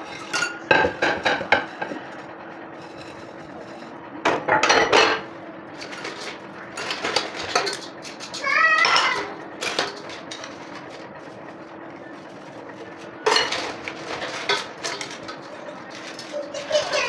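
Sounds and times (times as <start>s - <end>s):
dishes clinking against steel: 0.0s - 2.0s, 4.3s - 10.9s, 12.8s - 17.0s
dishes clattering: 0.0s - 11.3s, 12.0s - 17.0s
sponge scrubbing dishes: 0.0s - 17.0s.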